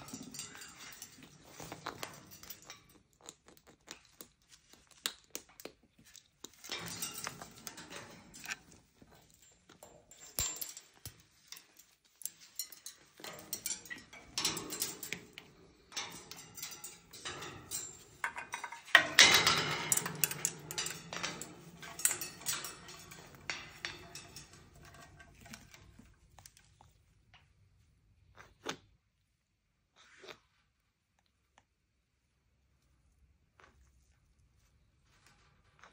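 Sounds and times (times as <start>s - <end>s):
beaks and claws clinking on cage bars: 0.0s - 3.7s, 5.4s - 26.7s.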